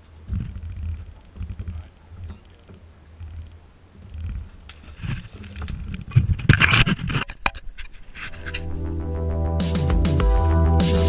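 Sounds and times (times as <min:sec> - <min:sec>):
wind buffeting microphone: 0:00.0 - 0:07.8.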